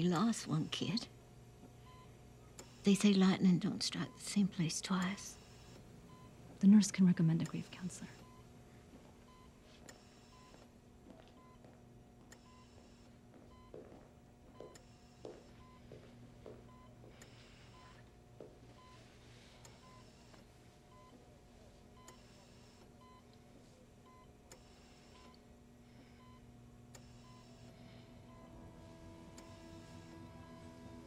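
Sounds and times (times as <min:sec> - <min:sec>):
patient monitor beeping: 0:00.0 - 0:23.4, 0:24.0 - 0:31.0
faint ventilator hiss: 0:00.0 - 0:31.0
low steady hum: 0:00.0 - 0:31.0.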